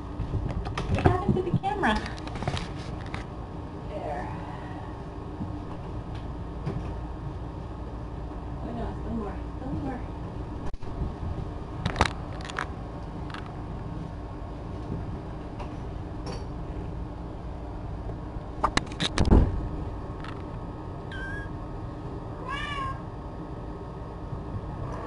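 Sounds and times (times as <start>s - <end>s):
cat meowing: 21.1s - 21.5s, 22.4s - 23.0s.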